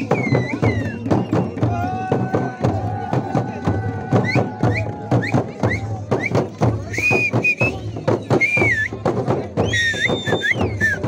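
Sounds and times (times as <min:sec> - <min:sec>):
high whistle-like calls: 0:00.0 - 0:01.8, 0:04.2 - 0:09.0, 0:09.6 - 0:11.0
frame drums beaten with sticks: 0:00.0 - 0:11.0.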